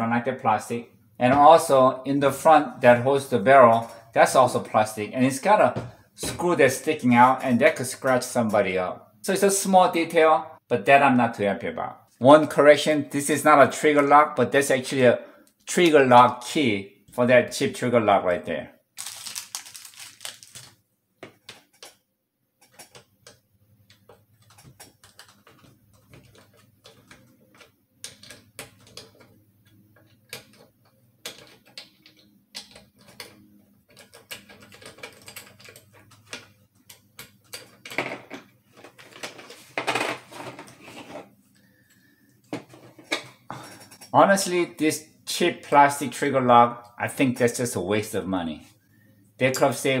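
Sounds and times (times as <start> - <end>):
plastic bag rustling: 19.0 - 20.8
handling noises: 19.0 - 22.0.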